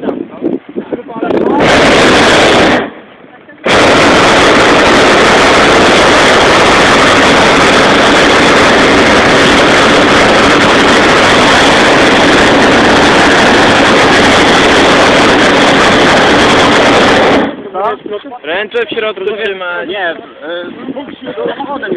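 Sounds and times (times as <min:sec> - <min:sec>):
propane burner roaring: 0:01.3 - 0:17.7.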